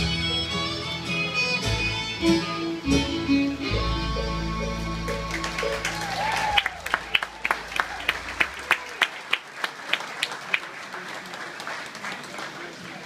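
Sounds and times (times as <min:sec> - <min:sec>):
bluegrass band playing: 0:00.0 - 0:08.6
audience applauding: 0:05.1 - 0:13.0
sharp claps: 0:05.1 - 0:13.0.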